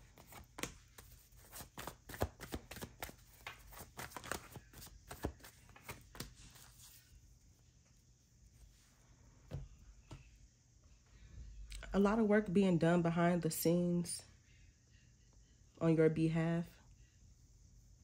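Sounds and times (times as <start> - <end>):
cards being shuffled: 0.0 - 7.1.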